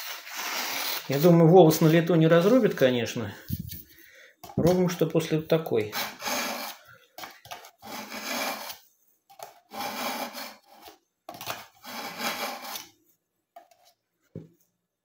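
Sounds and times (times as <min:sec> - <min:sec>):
knife blade scraping sharpener: 0:05.9 - 0:06.8, 0:11.8 - 0:12.9.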